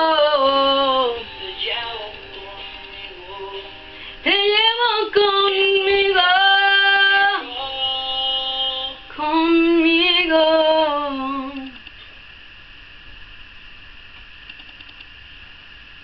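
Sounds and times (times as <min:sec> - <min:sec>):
woman singing wordless melody: 0:00.0 - 0:11.8.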